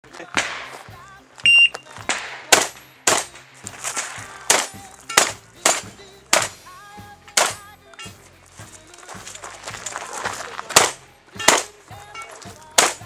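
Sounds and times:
shotgun shots with echo: 0:00.3 - 0:01.0, 0:02.0 - 0:06.6, 0:07.4 - 0:07.7, 0:10.7 - 0:11.8, 0:12.8 - 0:13.0.

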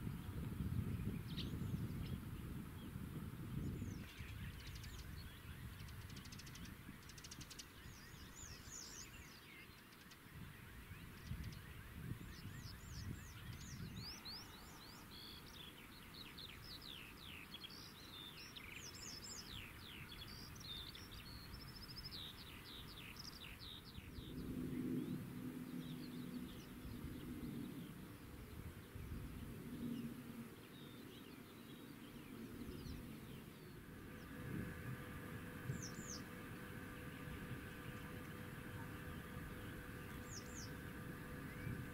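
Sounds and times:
low steady hum: 0:00.0 - 0:41.9
songbirds chirping: 0:00.0 - 0:41.9
outdoor background rumble: 0:10.7 - 0:31.3, 0:32.0 - 0:41.9.

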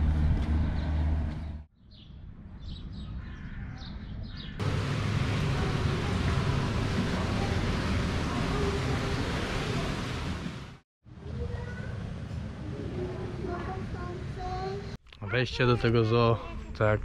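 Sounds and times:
steady rushing noise: 0:04.6 - 0:10.8.

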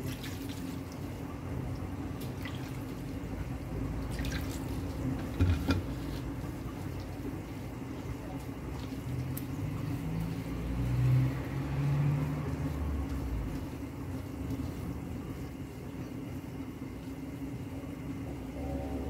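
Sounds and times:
low kitchen hum: 0:00.0 - 0:19.0
hands tossing noodles in dish: 0:04.0 - 0:17.3.

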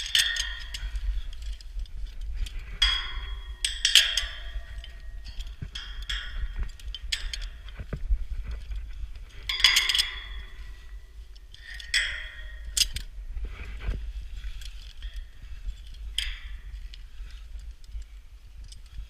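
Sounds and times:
snap hooks clanking on steel: 0:00.0 - 0:01.6, 0:02.8 - 0:07.6, 0:09.5 - 0:10.5, 0:11.4 - 0:13.1
wind rumbling on microphone: 0:00.0 - 0:19.0.

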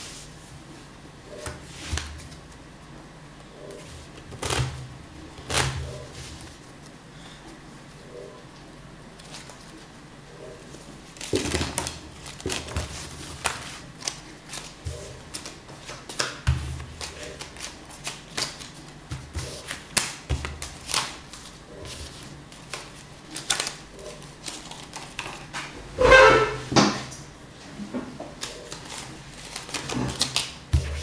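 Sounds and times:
playing cards snapping and clicking: 0:22.6 - 0:23.8.

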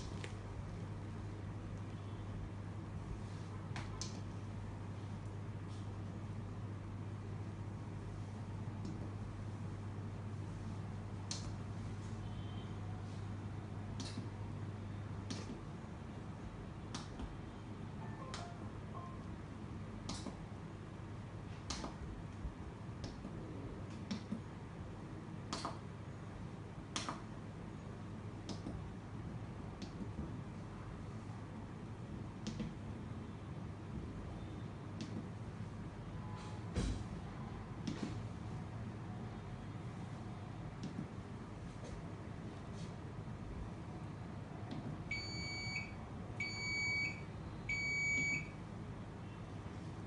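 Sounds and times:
button clicks: 0:18.1 - 0:19.1.

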